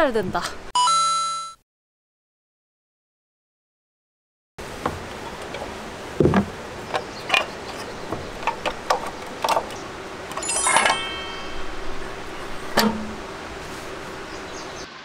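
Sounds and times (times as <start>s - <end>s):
objects being handled: 4.6s - 14.2s
ringing clink: 10.4s - 11.8s.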